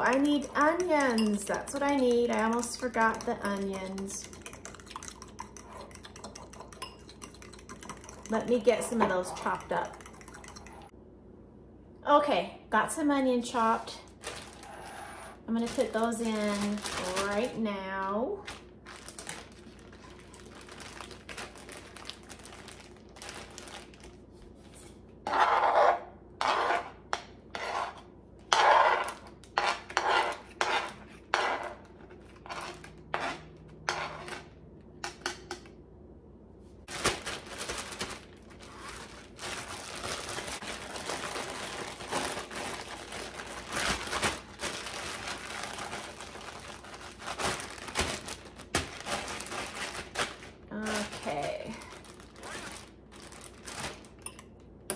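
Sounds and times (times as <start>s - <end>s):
knife tapping and scraping: 0.0s - 10.9s
plastic bag crinkling: 14.0s - 14.8s, 15.6s - 17.6s, 18.4s - 24.7s, 36.9s - 54.2s.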